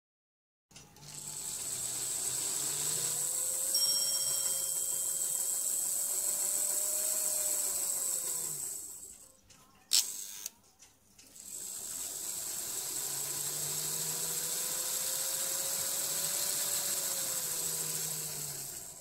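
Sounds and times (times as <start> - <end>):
model train motor whining: 0.7 - 9.3, 9.9 - 10.5, 11.2 - 19.0.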